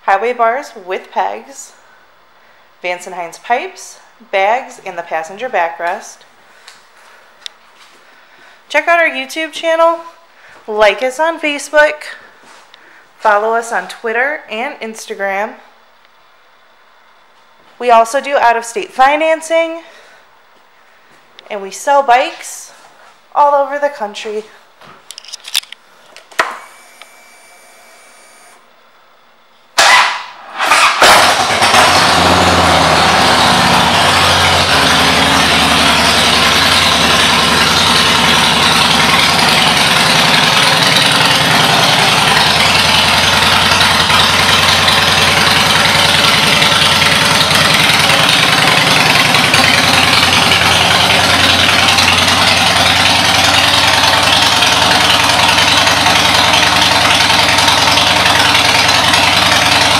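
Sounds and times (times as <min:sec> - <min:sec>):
motorcycle engine cranking: 0:30.7 - 0:59.9
motorcycle engine idling: 0:31.2 - 0:59.9.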